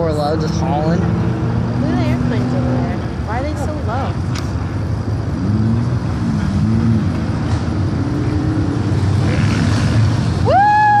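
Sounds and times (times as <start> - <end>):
car engine revving: 5.2 - 10.5.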